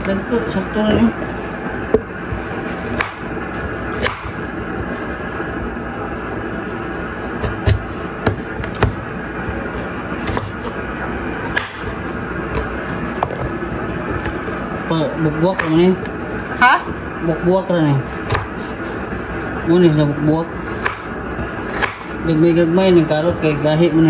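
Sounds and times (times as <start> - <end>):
knife cutting carrot on board: 1.9 - 3.3, 4.0 - 4.4.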